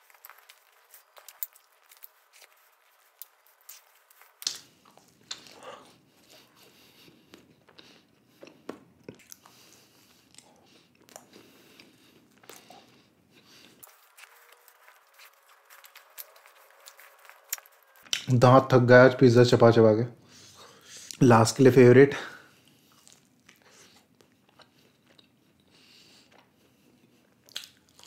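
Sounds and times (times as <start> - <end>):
man chewing: 0.0 - 18.3, 22.5 - 28.0
wet mouth clicks and smacks: 3.2 - 5.6, 7.3 - 9.6, 17.5 - 18.3, 27.5 - 28.0.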